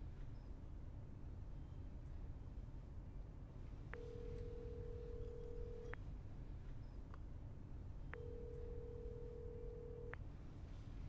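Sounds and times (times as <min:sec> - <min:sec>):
telephone ringback beep: 0:04.0 - 0:05.9, 0:08.2 - 0:10.2.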